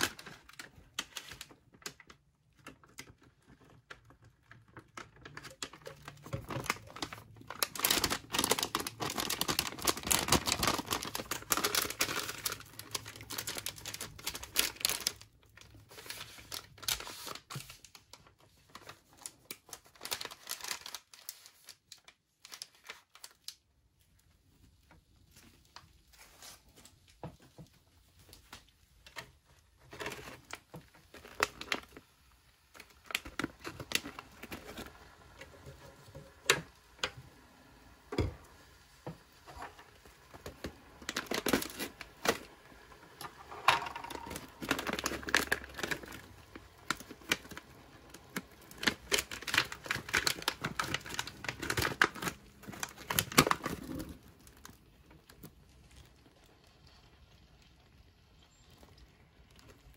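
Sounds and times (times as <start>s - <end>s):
foil pouches crinkling: 0.0s - 37.2s, 39.4s - 57.6s
pouch being torn open: 5.6s - 15.2s, 43.9s - 47.6s, 48.4s - 54.8s.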